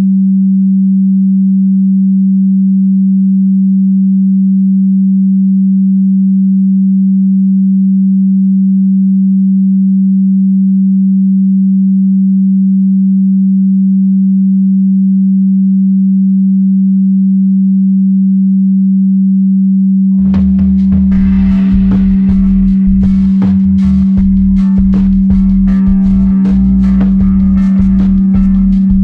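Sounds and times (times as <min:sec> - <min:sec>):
low steady sine tone: 0:00.0 - 0:29.0
music with struck ringing sounds: 0:20.2 - 0:29.0.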